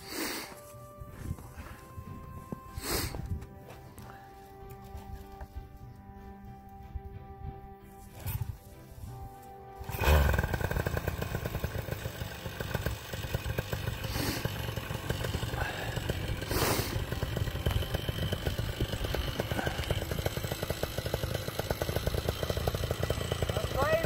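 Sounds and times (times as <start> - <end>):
paramotor engine idling: 9.8 - 24.0.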